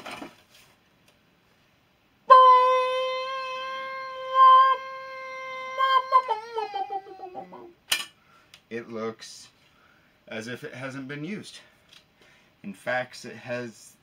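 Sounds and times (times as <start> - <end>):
long held note: 2.3 - 7.7.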